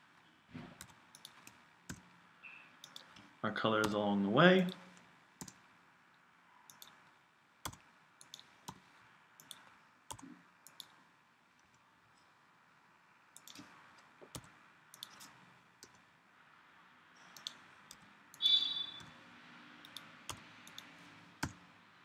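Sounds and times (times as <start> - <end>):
computer mouse and keyboard clicks: 0.8 - 2.2, 2.8 - 4.0, 6.7 - 8.8, 9.4 - 11.0, 13.4 - 16.0, 17.2 - 19.2, 19.8 - 21.7.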